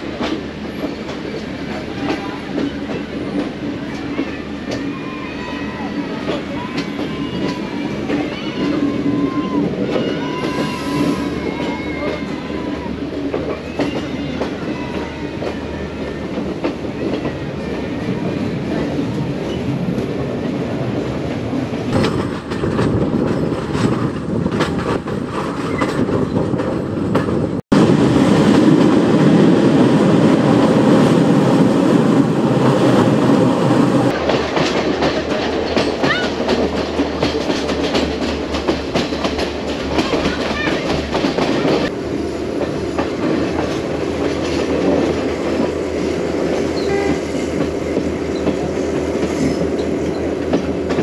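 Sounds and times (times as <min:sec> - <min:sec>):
train rumble: 0:00.0 - 0:51.0
train wheels clicking over rail joints: 0:12.9 - 0:27.6, 0:34.1 - 0:51.0.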